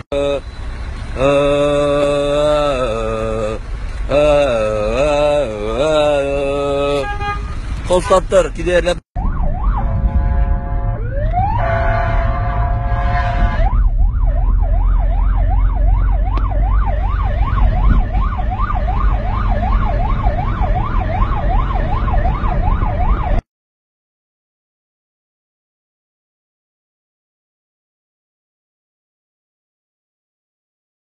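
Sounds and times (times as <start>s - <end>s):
steady low rumble: 9.2s - 23.4s
emergency vehicle siren: 9.2s - 23.5s.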